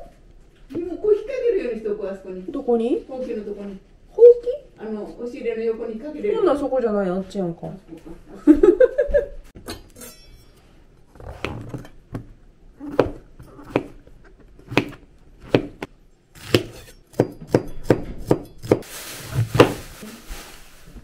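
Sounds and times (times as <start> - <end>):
knife chopping on cutting board: 12.2 - 14.0, 14.6 - 18.8.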